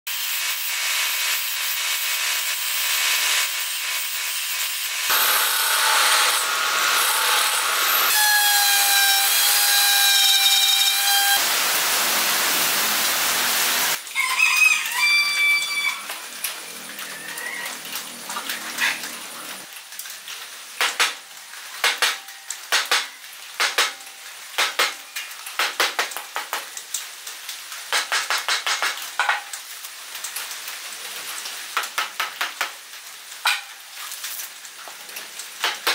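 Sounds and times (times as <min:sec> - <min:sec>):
lathe chisel hissing shavings: 0:05.0 - 0:14.0.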